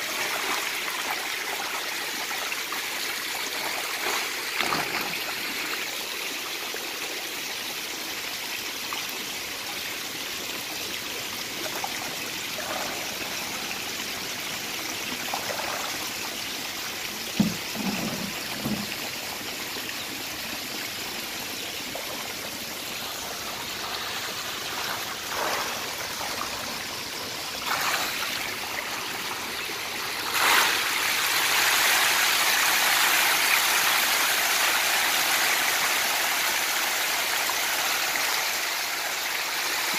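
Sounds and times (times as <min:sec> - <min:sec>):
water pouring into a tank: 0:00.0 - 0:06.0, 0:11.2 - 0:39.9.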